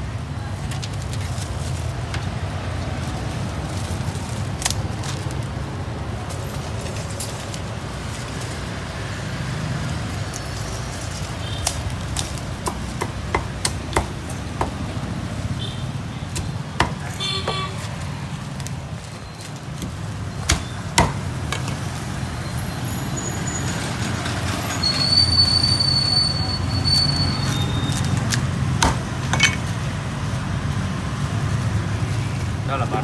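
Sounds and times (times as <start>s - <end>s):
low rumble of street noise: 0.0s - 33.0s
cleaver chopping meat: 12.1s - 14.9s, 16.3s - 17.7s, 19.8s - 21.3s, 28.3s - 29.2s.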